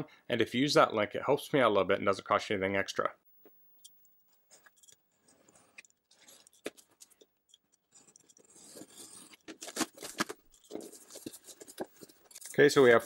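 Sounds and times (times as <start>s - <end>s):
cardboard scraping and rubbing: 8.0s - 12.8s.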